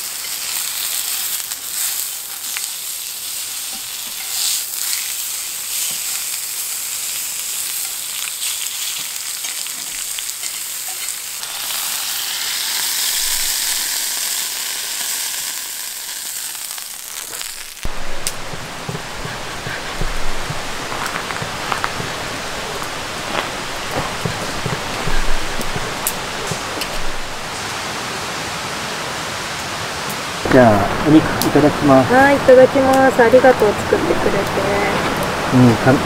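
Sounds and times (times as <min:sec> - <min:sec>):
small pops from frying: 0:00.0 - 0:19.0
meat sizzling in a pan: 0:00.0 - 0:27.4
fuller noise: 0:16.9 - 0:28.4.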